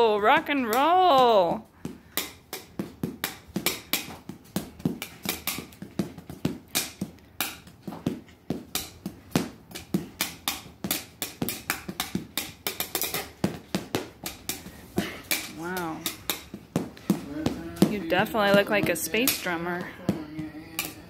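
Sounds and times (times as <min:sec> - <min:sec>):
sticks tapping on plastic tile: 0:08.7 - 0:21.0.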